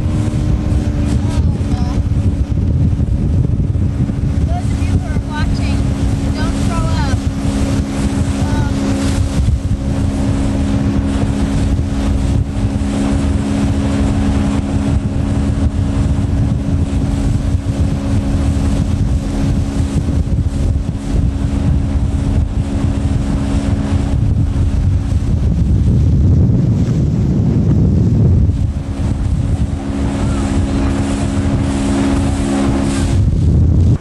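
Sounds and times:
motorboat engine drone: 0.0 - 34.0
wind rumble on microphone: 0.0 - 34.0.

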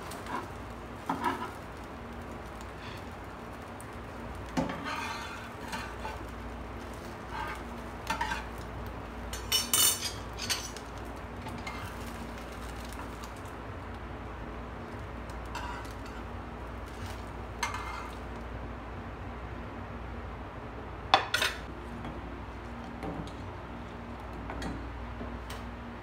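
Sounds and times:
metal spatula scraping frying pan: 0.1 - 1.6, 4.5 - 8.6, 11.5 - 12.0, 15.5 - 16.3, 17.6 - 18.2.

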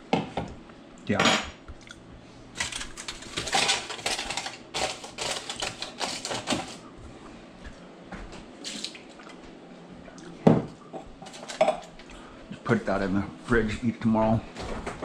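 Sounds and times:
aluminium foil crinkling: 2.6 - 6.8.

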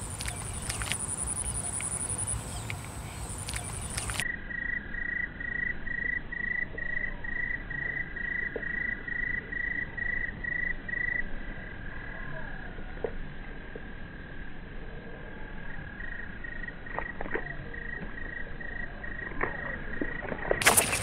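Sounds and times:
steady high whine: 0.0 - 5.4
insects chirping: 0.0 - 21.0.

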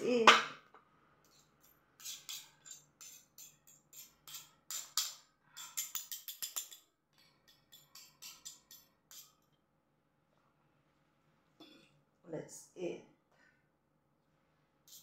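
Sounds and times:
fork and spoon clinking on plate: 1.6 - 9.4.

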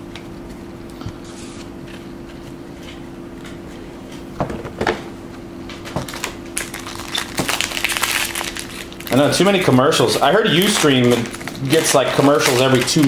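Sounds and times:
foil wrapper crinkling: 6.0 - 13.0.

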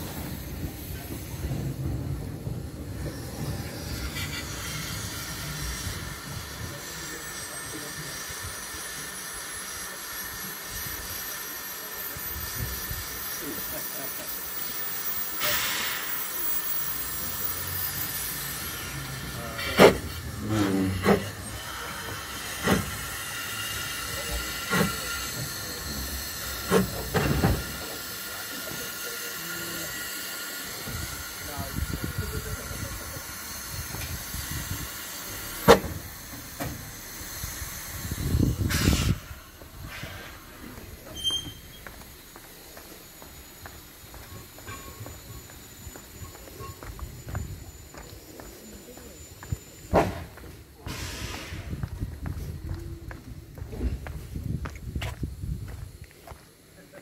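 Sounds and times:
rush of steam noise: 0.0 - 57.0
steam locomotive hissing steam: 0.0 - 57.0
loud pitched whistle call: 41.0 - 42.0.

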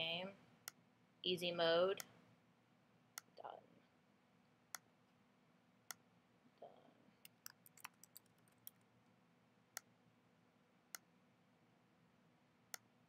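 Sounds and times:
mouse clicks: 7.2 - 8.8
keyboard typing: 7.3 - 8.8.

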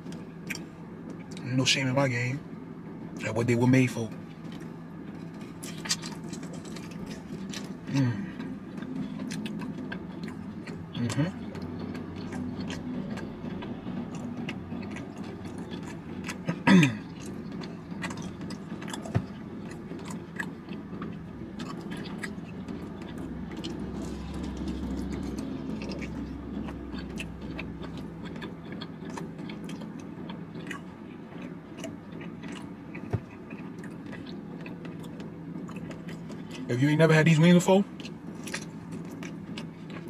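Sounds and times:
chewing and biting: 0.0 - 1.4, 4.4 - 36.7, 37.9 - 40.0
wet mouth clicks and smacks: 5.6 - 7.8.

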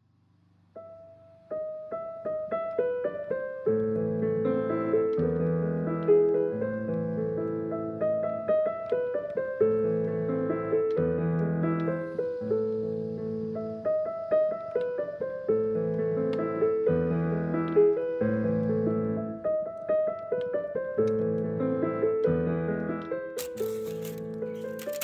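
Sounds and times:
solo piano music: 0.7 - 25.0
rustling: 23.4 - 25.0.

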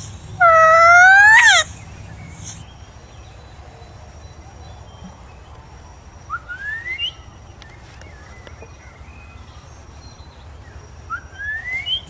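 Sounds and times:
parakeet whistled calls: 0.0 - 2.6, 11.1 - 12.0.

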